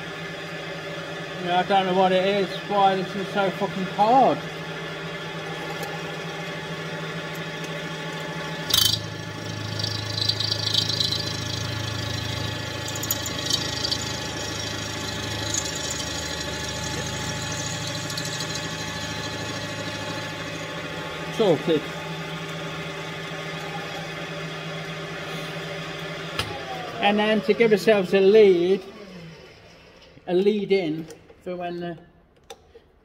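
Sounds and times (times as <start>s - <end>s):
milling machine spindle running: 0.0s - 30.3s
drill cutting metal: 8.5s - 22.0s.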